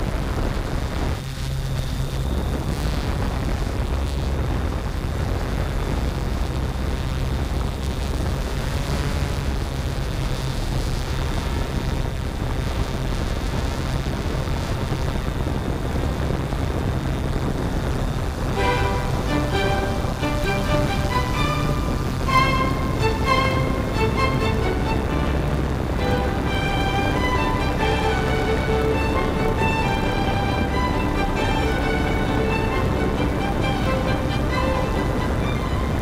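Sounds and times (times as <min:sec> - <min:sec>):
drone propellers humming: 0:16.6 - 0:36.0.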